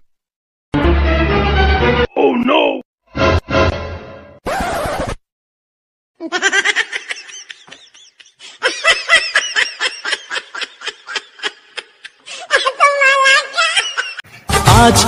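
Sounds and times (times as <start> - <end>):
high-pitched laughter: 6.2 - 14.2.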